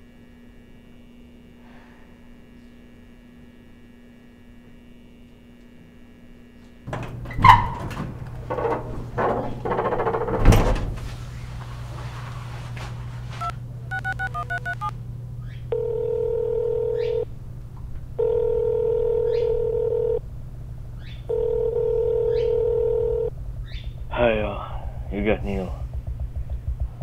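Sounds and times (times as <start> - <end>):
phone ringback tone: 13.4 - 14.9, 15.7 - 17.3, 18.2 - 20.2, 21.3 - 23.3
touch-tone dialling beeps: 13.4 - 14.9, 15.7 - 17.2, 18.2 - 20.2, 21.3 - 23.3.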